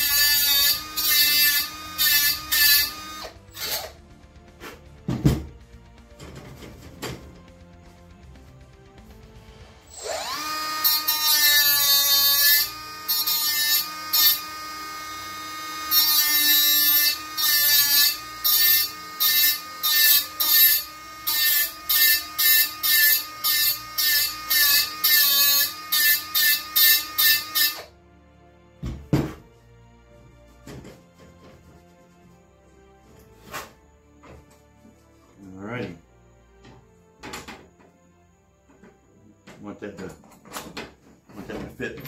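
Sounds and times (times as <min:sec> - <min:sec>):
rotary tool whining: 0:00.0 - 0:04.0, 0:09.9 - 0:27.9.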